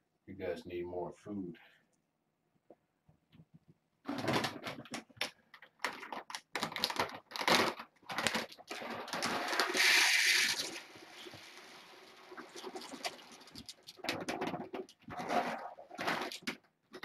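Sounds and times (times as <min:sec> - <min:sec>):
kibble rattling and rustling: 0:04.1 - 0:09.8, 0:12.2 - 0:17.0
kibble pouring: 0:05.8 - 0:16.6.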